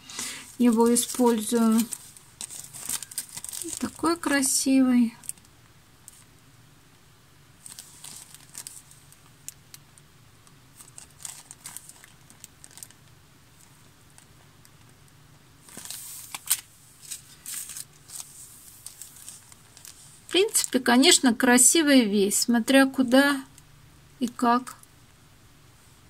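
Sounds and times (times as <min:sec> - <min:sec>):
packaging crinkling: 0:00.1 - 0:04.6, 0:07.6 - 0:10.0, 0:10.7 - 0:15.0, 0:15.6 - 0:20.9.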